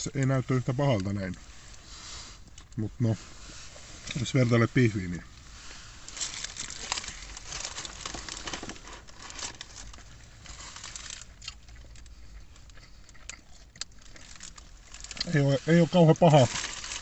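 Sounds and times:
paper wrappers crinkling: 6.0 - 12.1, 14.0 - 17.0.

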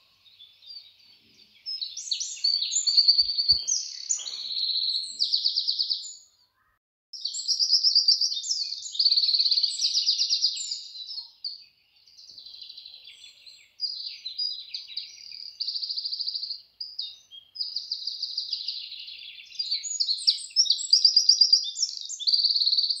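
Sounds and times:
birds chirping and trilling: 0.0 - 23.0.

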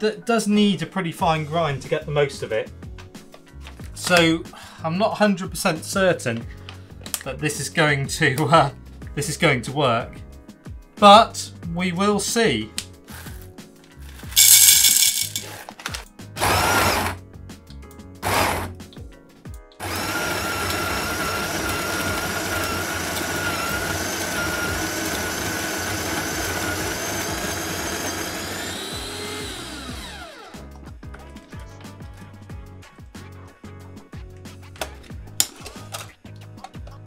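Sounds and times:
electric coffee grinder humming: 16.4 - 17.2, 18.2 - 18.8, 19.8 - 30.6.

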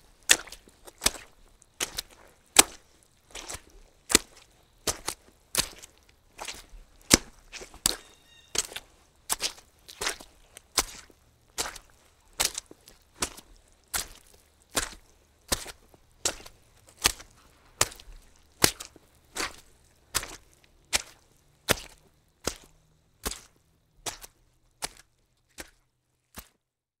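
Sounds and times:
footsteps through mud: 0.0 - 26.6.

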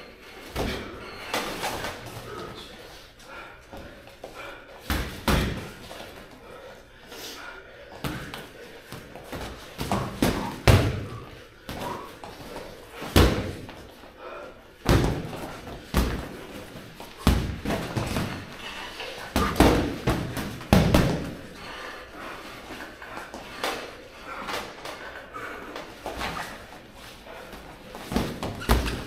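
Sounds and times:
boxing glove punches thudding: 14.9 - 16.4.

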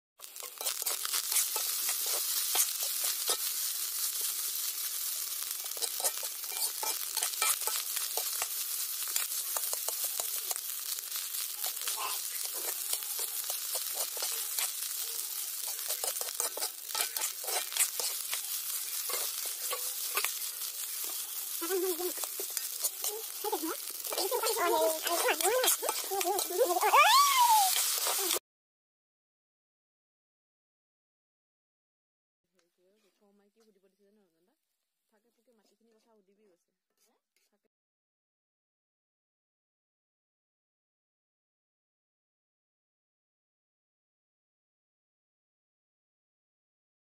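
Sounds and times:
spatula scraping pan: 0.2 - 28.4
wok sizzling: 0.2 - 28.4.

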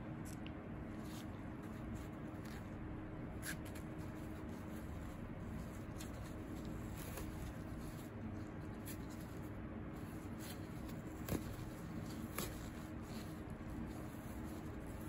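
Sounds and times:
foam wrap rubbing and scuffing: 3.3 - 15.0.

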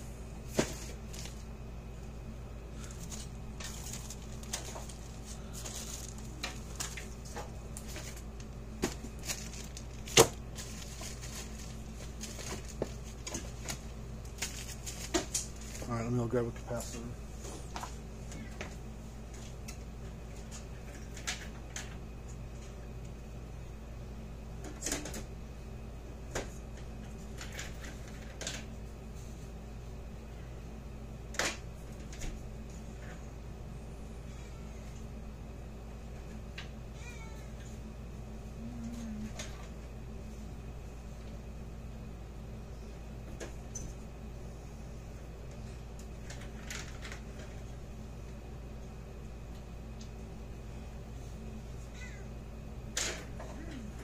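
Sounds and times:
steady low hum: 0.0 - 54.0
rummaging through parts bins: 0.4 - 1.4, 2.8 - 17.1
low hum: 28.8 - 54.0.

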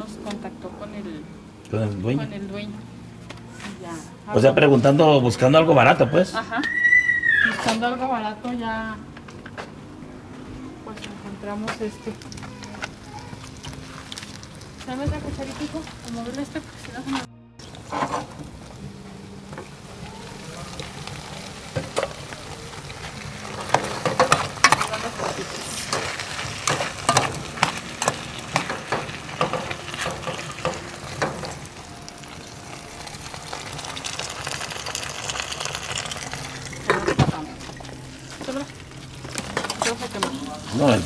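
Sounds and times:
vegetables frying in a pan: 12.0 - 41.0
spoon scraping and knocking pan: 23.6 - 31.6.

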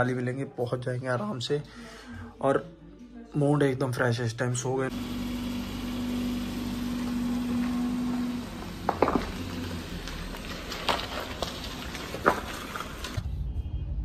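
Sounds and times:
car engine idling: 4.9 - 13.2.

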